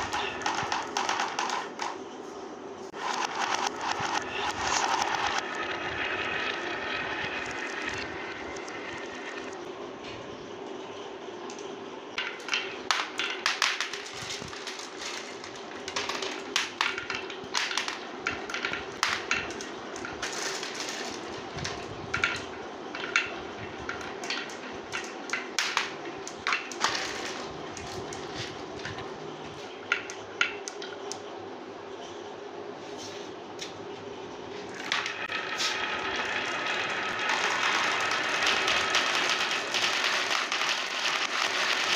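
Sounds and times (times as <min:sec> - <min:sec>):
marbles rolling on wood: 0:00.0 - 0:02.1, 0:02.9 - 0:09.6, 0:12.2 - 0:31.1, 0:34.7 - 0:41.9
marbles clicking together: 0:34.8 - 0:41.9.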